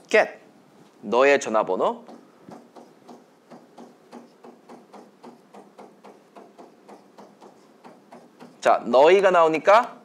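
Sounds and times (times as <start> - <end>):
chalk writing on chalkboard: 2.0 - 8.8.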